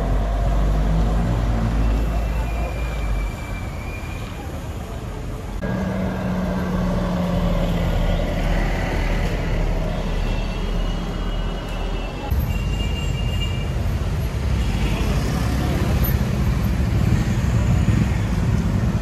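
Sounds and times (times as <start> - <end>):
city traffic: 0.0 - 19.0
bus engine hum: 4.6 - 10.0.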